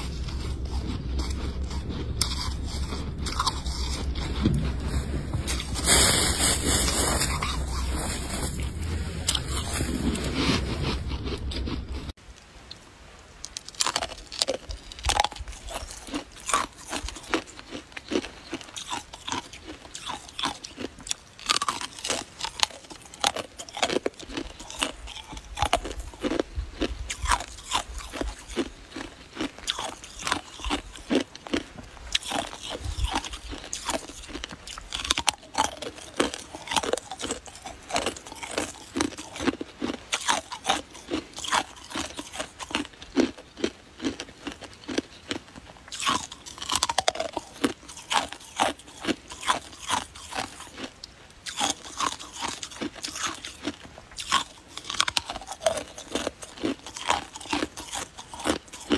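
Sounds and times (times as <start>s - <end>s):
loud steady noise: 0.0s - 12.1s
person crunching ice: 0.0s - 12.1s, 13.4s - 58.9s.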